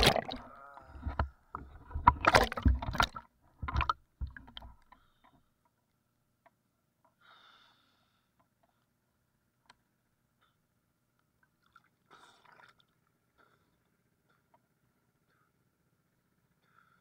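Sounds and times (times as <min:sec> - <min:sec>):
soft water splashes: 0:00.0 - 0:05.0, 0:11.4 - 0:13.2.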